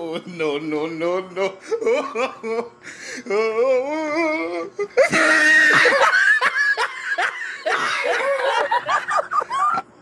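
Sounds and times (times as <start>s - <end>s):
person laughing loudly: 1.6s - 2.8s, 4.7s - 9.9s.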